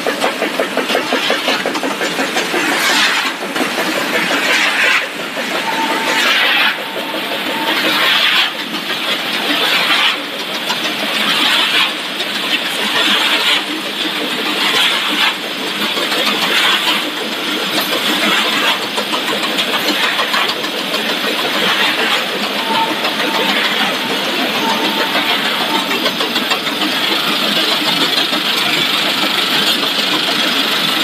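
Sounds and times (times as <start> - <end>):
machinery hiss and rumble: 0.0 - 31.0
faint short beeps: 5.6 - 6.3.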